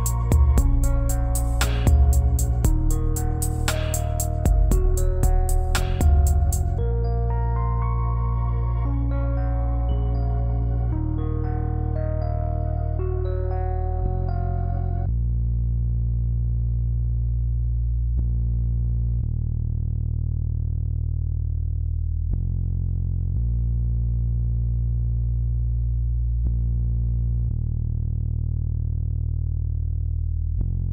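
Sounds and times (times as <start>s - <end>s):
slow synthesizer music: 0.0s - 15.2s.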